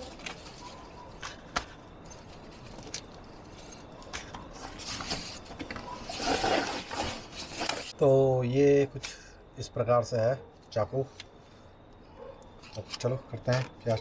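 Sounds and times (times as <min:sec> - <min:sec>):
rustling: 0:00.0 - 0:08.0.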